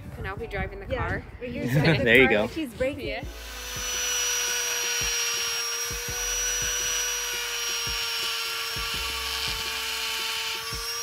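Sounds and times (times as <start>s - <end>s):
angle grinder grinding metal: 3.3s - 11.0s.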